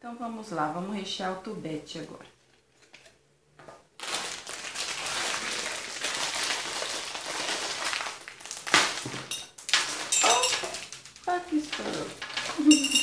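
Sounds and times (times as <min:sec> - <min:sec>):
plastic bag crinkling: 0:03.9 - 0:13.0.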